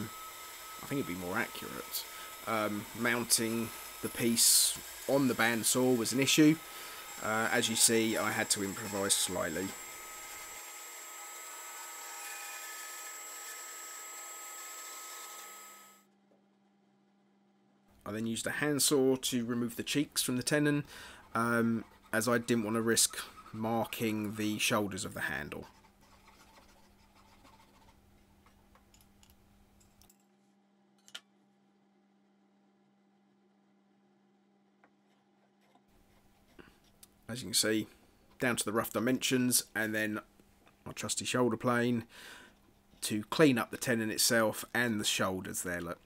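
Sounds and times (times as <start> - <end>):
bandsaw cutting wood: 0.0 - 16.0, 19.6 - 25.6.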